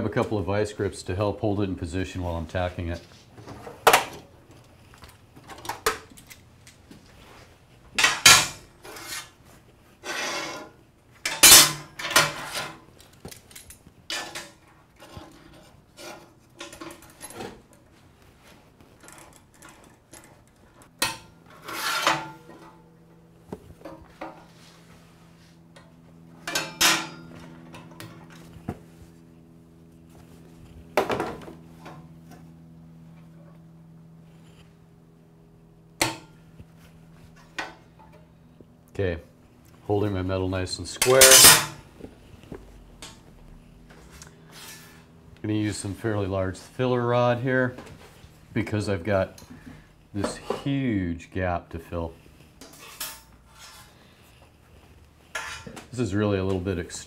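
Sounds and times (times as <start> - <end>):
faint steady hum: 0.0 - 57.0
steel tools clanking on metal table: 11.3 - 12.8, 26.4 - 27.9, 41.0 - 41.8, 55.3 - 55.8.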